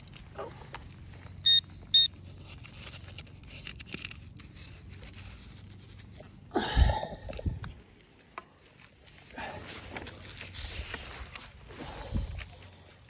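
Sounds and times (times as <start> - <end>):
short high beeps: 1.4 - 2.1.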